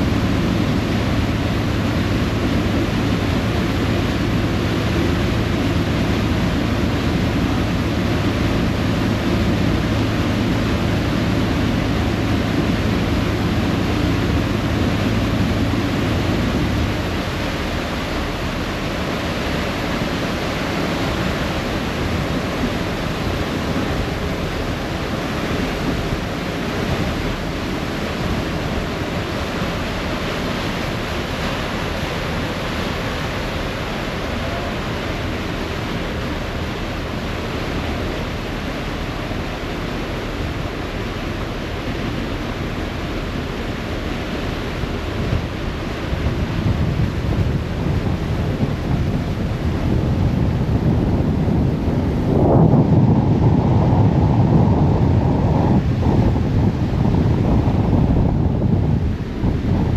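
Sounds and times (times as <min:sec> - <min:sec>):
boat wake rushing and churning: 0:00.0 - 0:59.9
wind buffeting microphone: 0:42.3 - 0:59.9.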